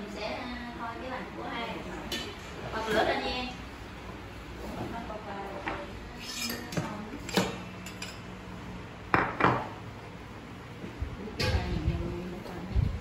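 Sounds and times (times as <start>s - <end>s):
utensils clinking on metal bowls: 6.2s - 8.3s.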